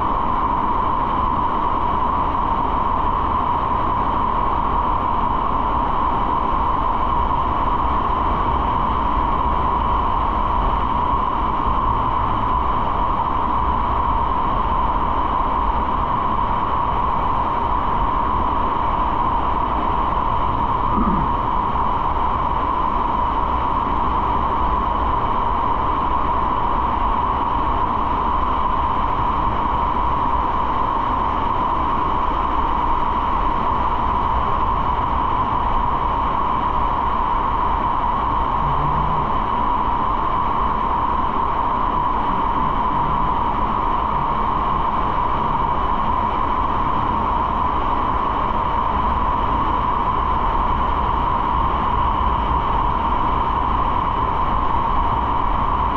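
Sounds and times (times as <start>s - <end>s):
motorcycle engine and road drone: 37.6s - 50.6s.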